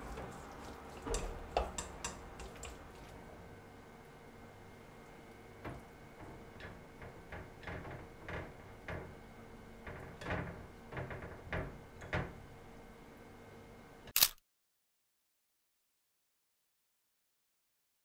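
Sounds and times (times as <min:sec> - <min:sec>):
chopsticks tapping ceramic dish: 0:01.1 - 0:02.8.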